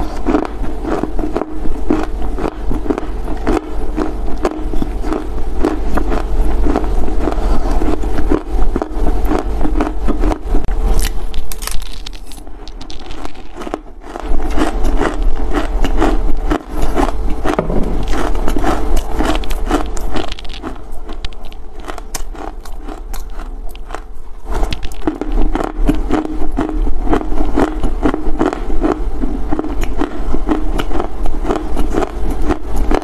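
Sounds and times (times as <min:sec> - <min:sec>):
steady low hum: 0:00.0 - 0:33.0
dry earth crunching and crackling: 0:11.0 - 0:15.2, 0:16.8 - 0:24.0.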